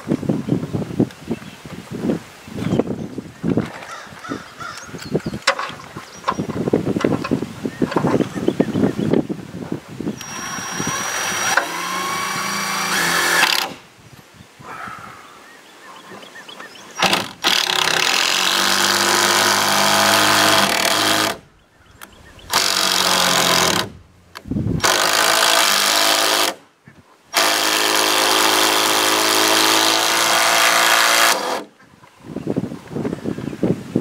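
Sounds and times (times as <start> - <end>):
power drill driving screw: 10.2 - 13.8, 17.0 - 21.4, 22.5 - 24.0, 24.8 - 26.6, 27.4 - 31.7.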